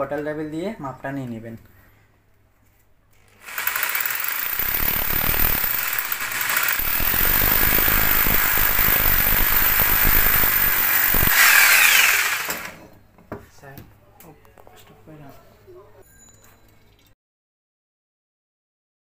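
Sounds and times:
hammer drill boring into brick: 0:03.3 - 0:12.9.

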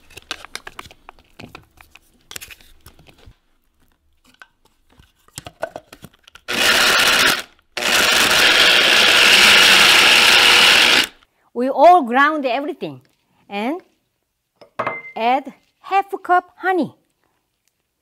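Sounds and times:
blade coffee grinder running: 0:06.5 - 0:11.2.

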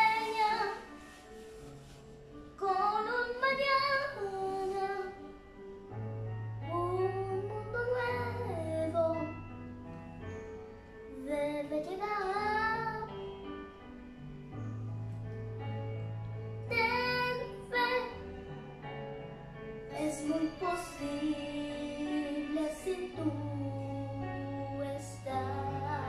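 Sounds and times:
girl singing: 0:00.0 - 0:01.2, 0:02.5 - 0:05.4, 0:06.6 - 0:09.5, 0:11.1 - 0:13.3, 0:16.7 - 0:18.6, 0:19.9 - 0:26.0.

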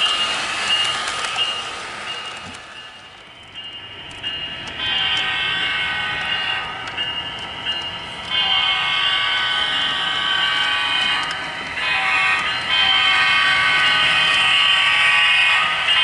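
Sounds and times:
model train horn blasts: 0:04.8 - 0:06.9, 0:08.3 - 0:16.0.

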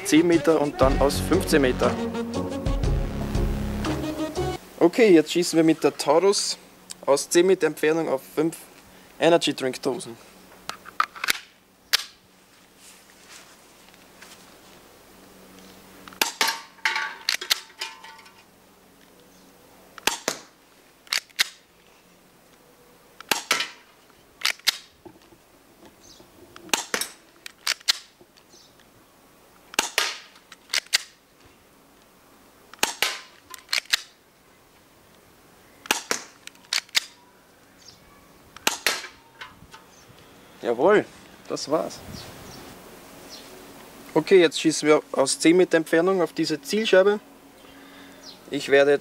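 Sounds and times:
airsoft pistol shots: 0:20.0 - 0:20.5, 0:23.3 - 0:23.8, 0:26.7 - 0:27.1, 0:29.8 - 0:31.0, 0:32.8 - 0:33.3, 0:35.9 - 0:37.0, 0:38.6 - 0:39.2.

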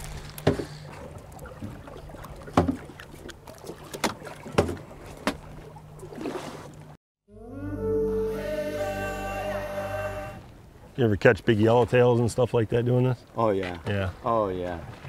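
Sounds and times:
knocks on boat: 0:04.0 - 0:05.4.

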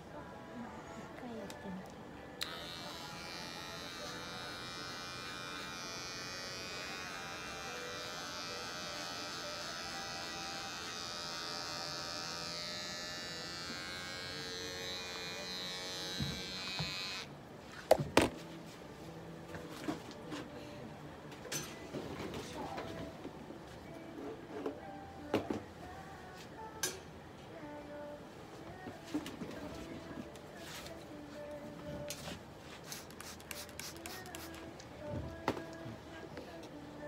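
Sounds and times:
electric pet clipper buzzing: 0:02.4 - 0:17.3.

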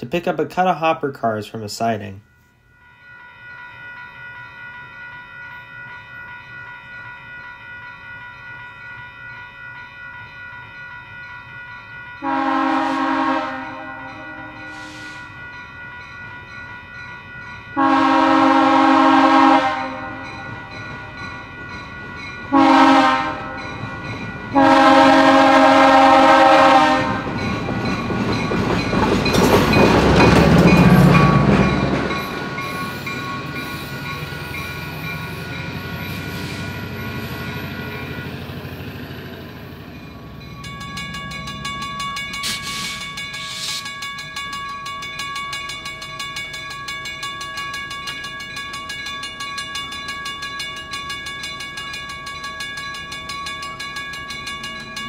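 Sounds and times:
crossing warning bell ringing: 0:00.0 - 0:55.0
locomotive chime horn: 0:09.6 - 0:16.9, 0:17.6 - 0:21.7, 0:22.5 - 0:28.4, 0:40.0 - 0:43.9
train wheels: 0:14.6 - 0:15.7, 0:23.4 - 0:55.0
locomotive diesel engine: 0:29.6 - 0:43.8.

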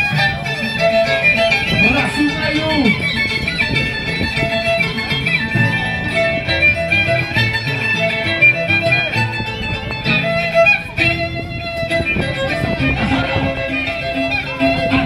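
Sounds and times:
plucked-string accompaniment: 0:00.0 - 0:15.0
violin playing lively melody: 0:00.0 - 0:15.0.

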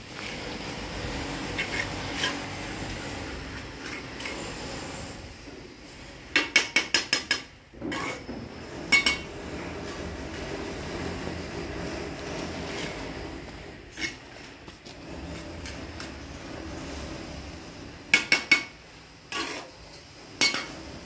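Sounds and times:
trowel scraping mortar: 0:00.0 - 0:18.7, 0:19.3 - 0:21.0
trowel tapping bricks: 0:06.3 - 0:08.2, 0:18.1 - 0:18.7.

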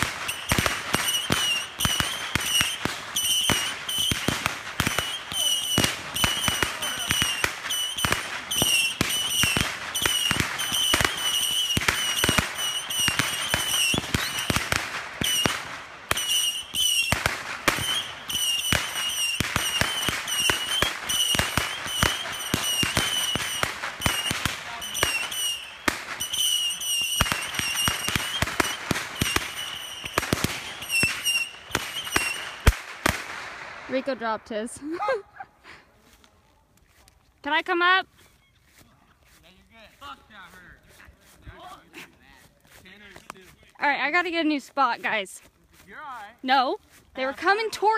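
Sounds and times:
fireworks popping and banging: 0:00.0 - 0:34.9, 0:39.6 - 0:47.9
high wavering whistle: 0:16.2 - 0:17.1, 0:24.9 - 0:32.6.

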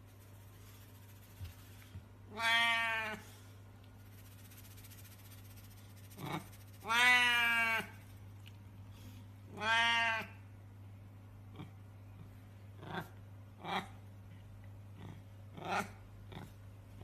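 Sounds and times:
cat meowing: 0:02.3 - 0:03.2, 0:06.8 - 0:07.9, 0:09.5 - 0:10.4.

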